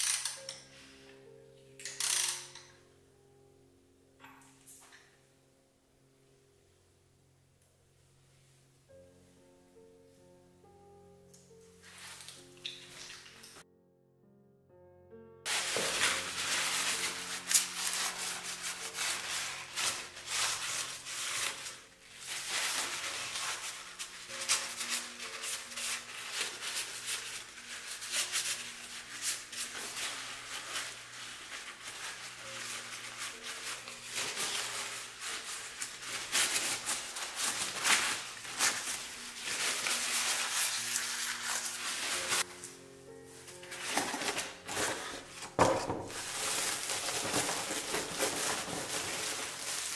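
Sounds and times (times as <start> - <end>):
soft background music: 0.0 - 49.9
cloth rubbing on metal: 15.5 - 42.5, 43.6 - 49.9.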